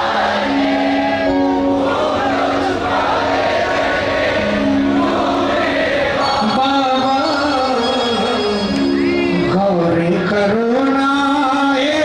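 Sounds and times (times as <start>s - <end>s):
amplified musical accompaniment: 0.0s - 12.0s
man singing into microphone: 6.2s - 12.0s.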